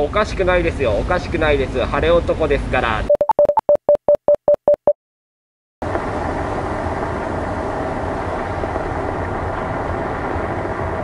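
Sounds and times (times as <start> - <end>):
ferry engine rumble: 5.8 - 11.0.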